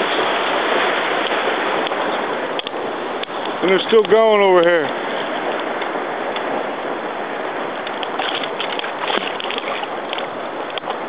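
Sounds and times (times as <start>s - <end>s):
sea water and wind rushing: 0.0s - 11.0s
faint splashes: 8.0s - 10.4s.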